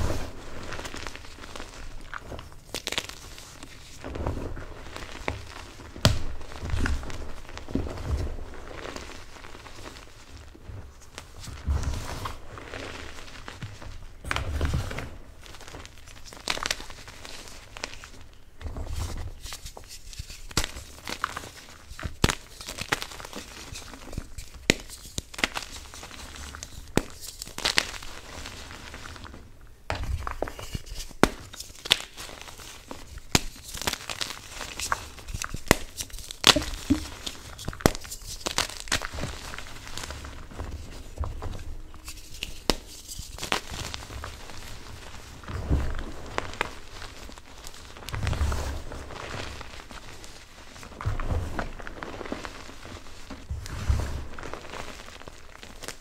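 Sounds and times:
chalk crunching and crumbling: 0.0s - 10.4s, 18.8s - 29.4s, 30.0s - 56.0s.

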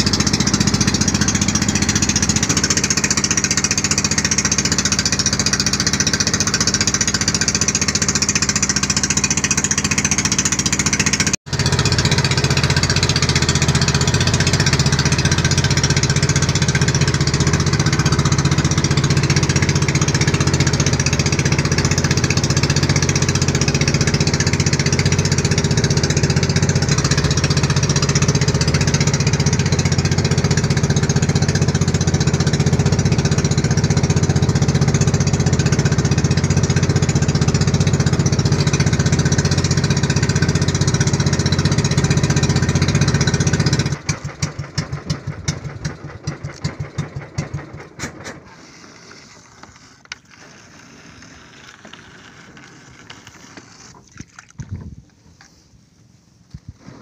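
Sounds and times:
boat engine running: 0.0s - 55.0s.

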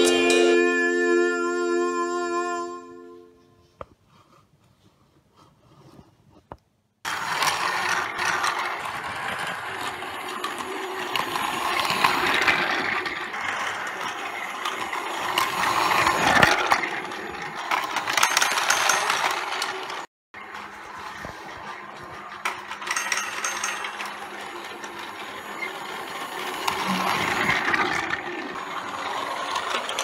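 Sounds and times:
toy train clicks: 7.1s - 30.0s
toy train motor whirring: 7.1s - 30.0s.

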